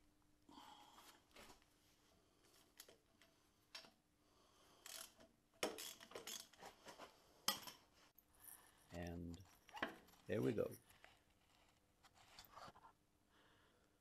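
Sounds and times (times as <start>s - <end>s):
metallic clicks of tools: 4.8s - 6.6s.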